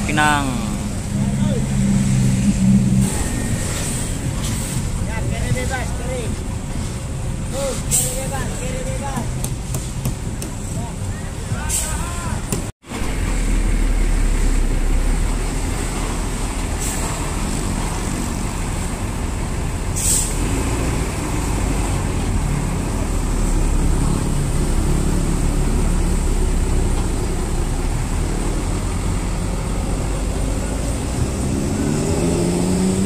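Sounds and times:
bus diesel engine rumbling: 0.0s - 33.0s
air brake hisses: 7.5s - 8.3s, 20.0s - 20.4s.

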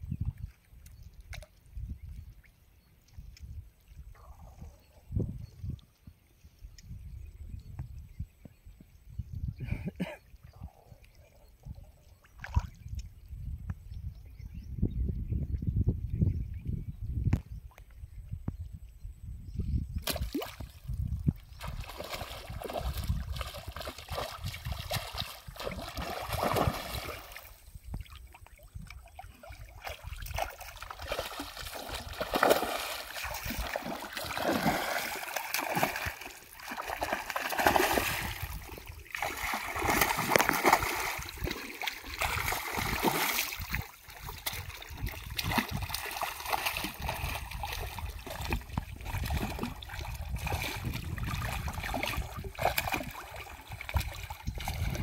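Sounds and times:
fish splashing in water: 21.6s - 27.6s, 29.0s - 55.0s.

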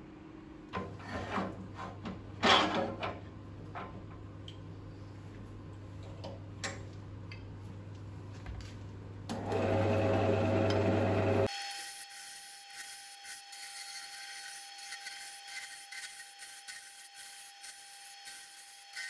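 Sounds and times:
lathe motor running: 9.3s - 11.5s.

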